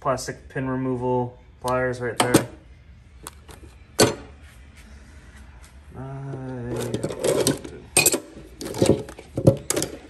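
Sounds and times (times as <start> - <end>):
metal hand tools clinking: 6.7 - 10.0.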